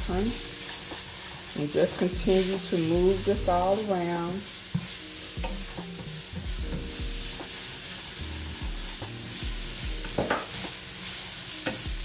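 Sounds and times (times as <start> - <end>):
vegetables sizzling in oil: 0.0 - 12.0.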